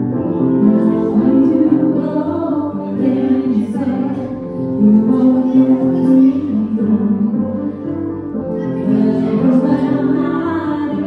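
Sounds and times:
electronic keyboard: 0:00.0 - 0:11.0
woman singing into microphone: 0:00.6 - 0:07.8, 0:08.6 - 0:11.0.

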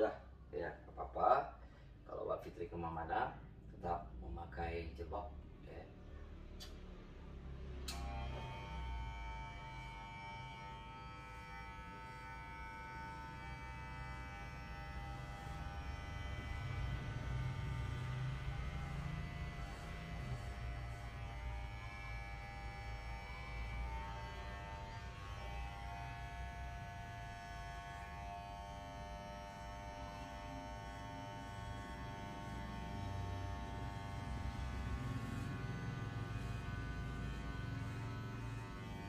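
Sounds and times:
electric hair clippers buzzing: 0:07.9 - 0:39.0.

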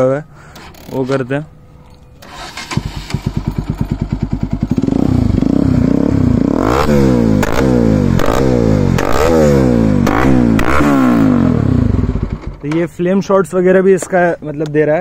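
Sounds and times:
motorcycle engine revving: 0:02.2 - 0:12.8.

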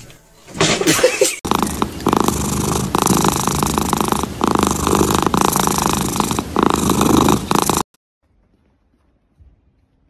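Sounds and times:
cat purring: 0:01.4 - 0:07.9.

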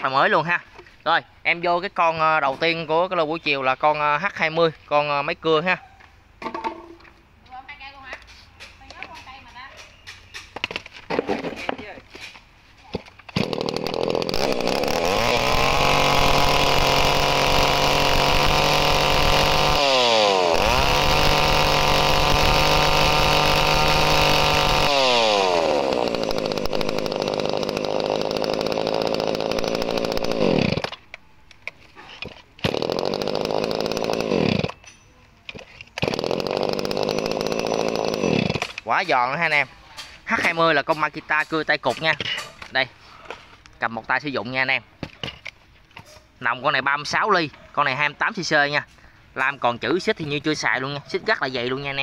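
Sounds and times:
chainsaw engine revving: 0:13.3 - 0:31.0, 0:32.2 - 0:34.8, 0:36.0 - 0:38.9.

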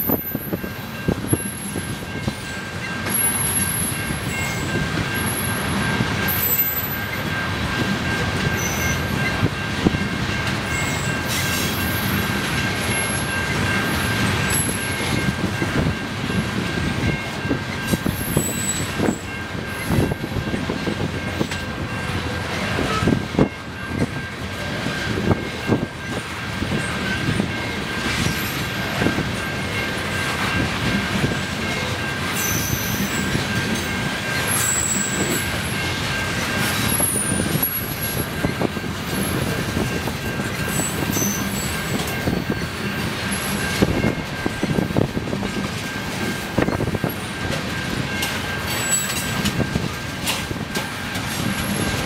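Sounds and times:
freight train rumble: 0:00.0 - 0:52.0
high-pitched wheel squeals: 0:08.4 - 0:09.2, 0:10.7 - 0:13.2, 0:17.9 - 0:20.3, 0:32.4 - 0:33.4, 0:34.3 - 0:35.8, 0:40.4 - 0:44.1.

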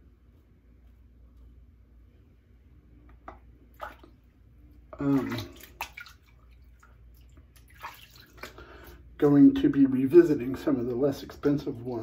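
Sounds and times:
water splashing in a sink: 0:03.3 - 0:09.1.

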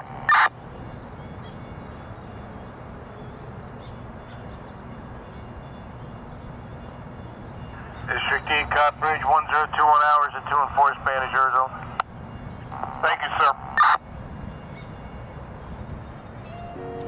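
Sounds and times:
low outdoor background rumble: 0:07.2 - 0:17.0.

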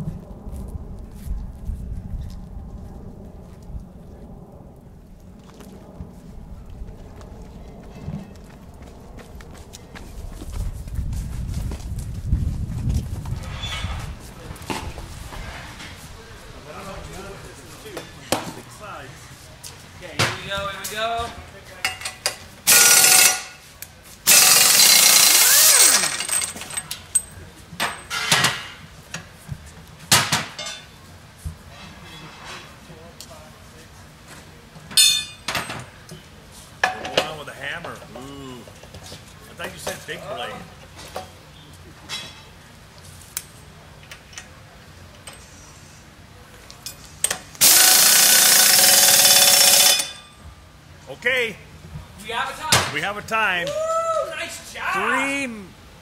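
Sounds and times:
pneumatic impact wrench: 0:22.7 - 0:23.6, 0:24.3 - 0:26.7, 0:47.3 - 0:50.2.

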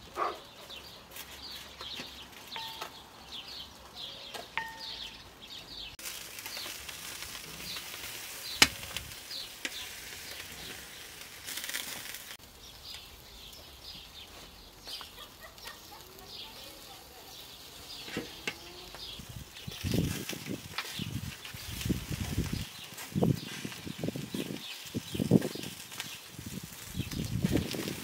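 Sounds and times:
birds chirping: 0:00.0 - 0:28.0
fish sizzling on grill: 0:00.0 - 0:28.0.

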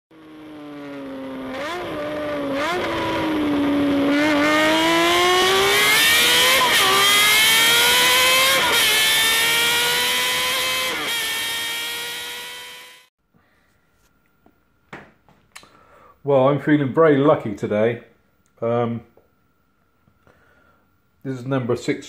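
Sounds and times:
engine accelerating through gears: 0:00.1 - 0:13.1.

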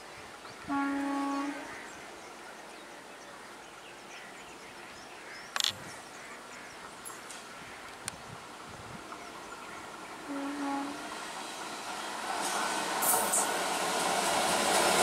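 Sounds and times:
train horn blast: 0:00.7 - 0:01.8, 0:10.3 - 0:11.1
sharp click: 0:05.5 - 0:05.8.

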